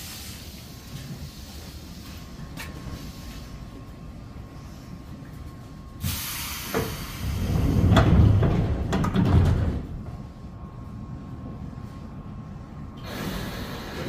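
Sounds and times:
compressed air hiss: 0:00.0 - 0:03.6, 0:06.0 - 0:07.6, 0:13.0 - 0:14.0
sliding doors knocking and rumbling: 0:06.8 - 0:10.2.

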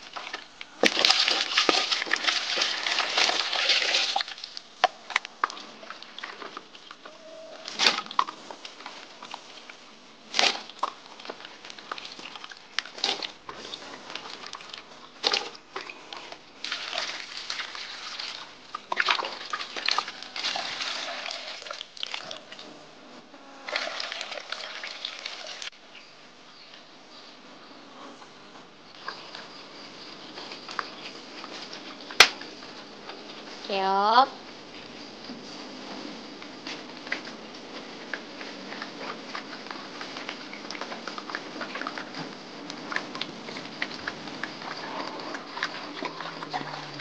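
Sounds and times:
dogs lapping and chewing: 0:00.0 - 0:22.8, 0:34.6 - 0:47.0.

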